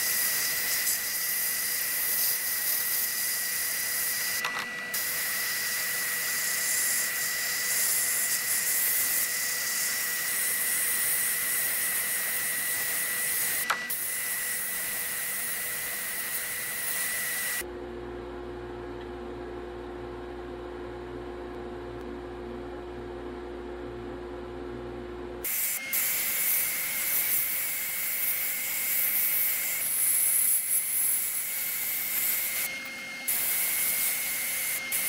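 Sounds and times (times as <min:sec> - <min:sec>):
sandblasting gun hissing: 0:00.0 - 0:17.6, 0:25.4 - 0:35.0.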